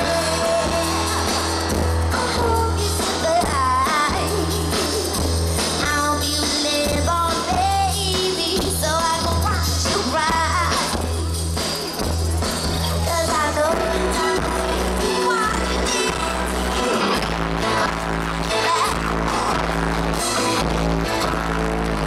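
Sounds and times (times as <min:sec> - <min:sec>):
heavy pulsing bass: 0:00.0 - 0:07.3, 0:10.4 - 0:22.0
live pop-soul band: 0:00.0 - 0:22.0
woman singing: 0:02.1 - 0:11.1, 0:13.0 - 0:17.0.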